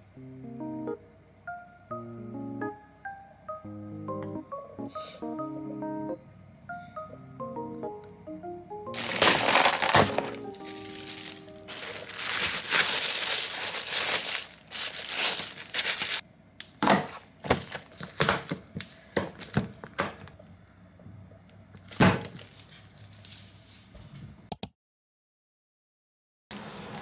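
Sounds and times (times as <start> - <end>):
plastic bag crinkling: 9.0 - 16.2, 17.1 - 19.6, 21.9 - 23.5.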